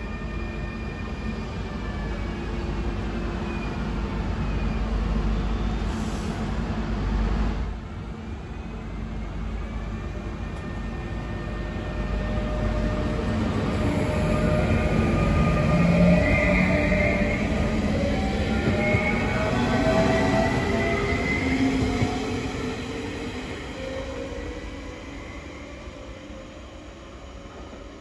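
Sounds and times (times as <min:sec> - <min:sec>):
train wheels rumbling on rail: 0:10.3 - 0:25.1.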